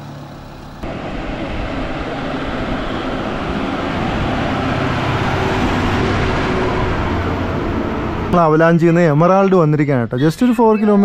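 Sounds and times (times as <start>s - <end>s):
bus diesel engine running: 0.0s - 11.0s.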